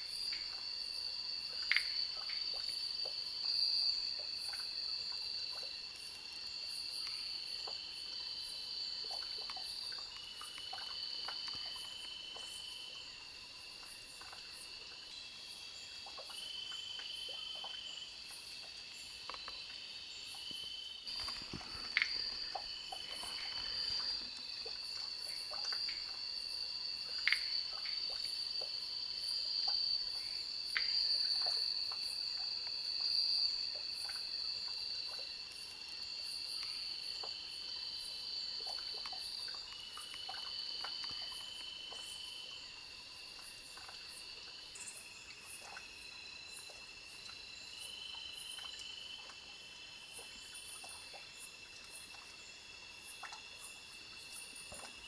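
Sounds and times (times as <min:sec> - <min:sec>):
insects trilling: 0:00.0 - 0:55.0
faint ticks and clicks: 0:01.5 - 0:06.1, 0:06.8 - 0:12.8, 0:16.0 - 0:26.4, 0:30.6 - 0:35.6, 0:36.4 - 0:37.9, 0:38.5 - 0:42.4.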